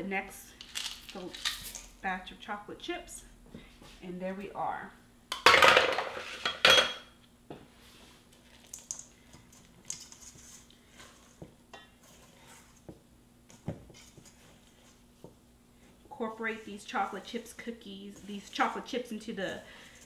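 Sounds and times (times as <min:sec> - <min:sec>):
kitchen utensils clattering: 0:05.4 - 0:07.1
spatula stirring stiff dough: 0:07.7 - 0:20.0.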